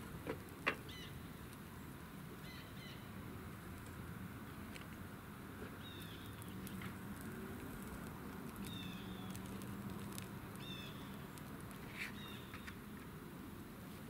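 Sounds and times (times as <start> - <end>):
bird calls: 0.8 - 1.2, 2.4 - 3.1, 5.8 - 6.8, 8.6 - 9.4, 10.5 - 11.3, 12.0 - 12.8.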